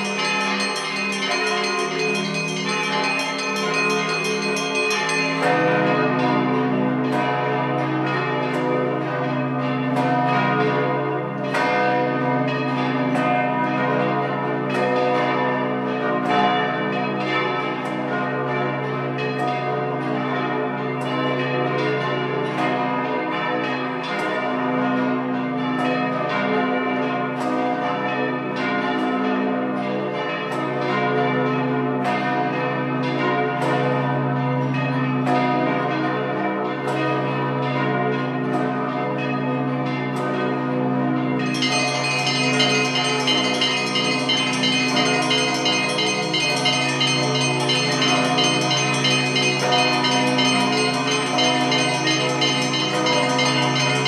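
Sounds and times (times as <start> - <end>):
church bells ringing: 0.0 - 54.0.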